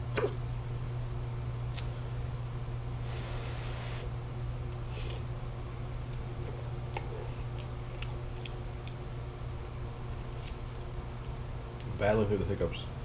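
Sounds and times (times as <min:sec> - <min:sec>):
steady low hum: 0:00.0 - 0:13.0
chewing with wet mouth clicks: 0:04.7 - 0:11.9.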